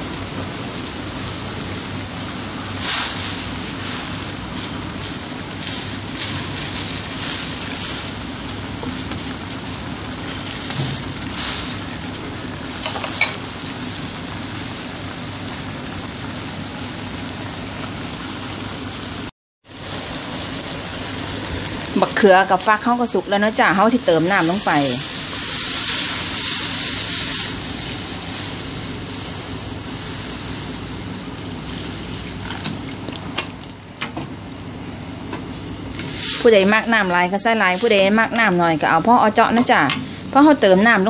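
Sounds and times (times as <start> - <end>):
curry bubbling and sizzling: 0.0 - 34.0.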